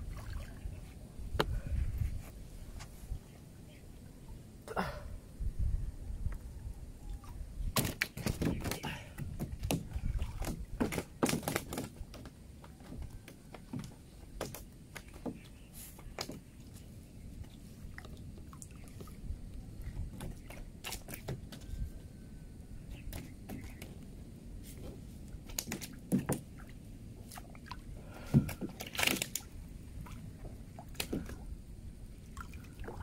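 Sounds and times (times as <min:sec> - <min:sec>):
water sloshing around wading person: 0:00.0 - 0:01.1, 0:07.8 - 0:22.0, 0:22.9 - 0:33.0.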